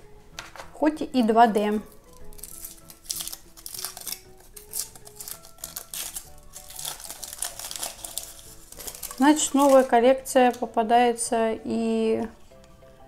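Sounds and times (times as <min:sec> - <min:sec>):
soft background music: 0:00.0 - 0:13.0
packaging and toys rustling: 0:01.9 - 0:10.6.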